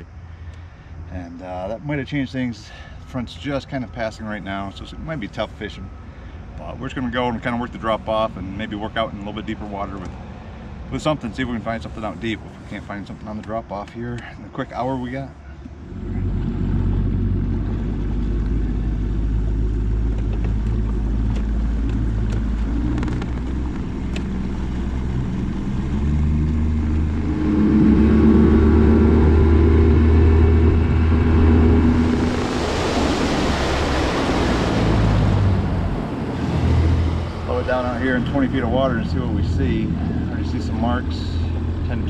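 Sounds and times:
boat motor running: 15.4 - 42.0
wind and water rushing: 15.9 - 41.8.

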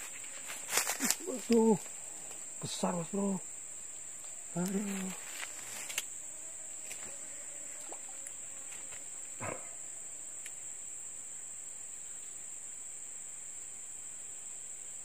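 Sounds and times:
insects droning: 0.0 - 15.0
faint ticks: 4.2 - 6.1, 10.4 - 10.6.

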